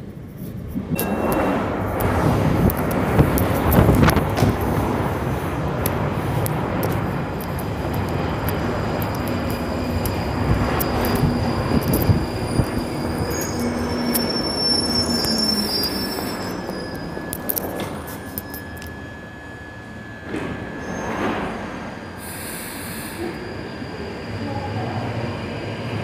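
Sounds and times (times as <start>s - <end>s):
train rumbling past platform: 0.0s - 26.0s
high wheel squeal: 8.7s - 25.8s.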